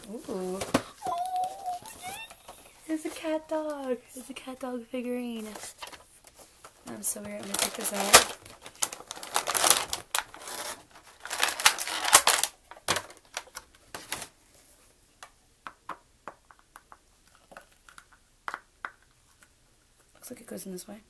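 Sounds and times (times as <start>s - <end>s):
plastic packaging crinkling: 7.4s - 14.3s.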